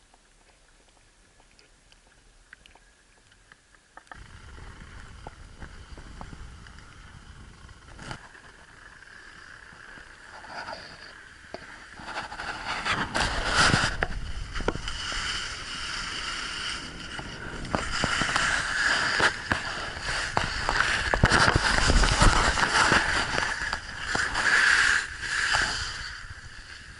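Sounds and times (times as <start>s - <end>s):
low rumble: 4.2s - 10.4s
skis scraping on snow: 4.3s - 26.9s.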